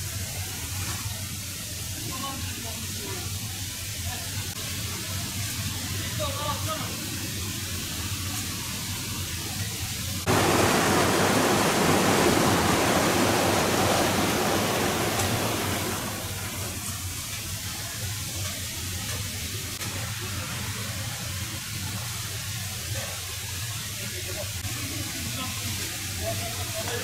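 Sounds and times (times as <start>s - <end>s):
creek water rushing over rocks: 10.3s - 17.2s.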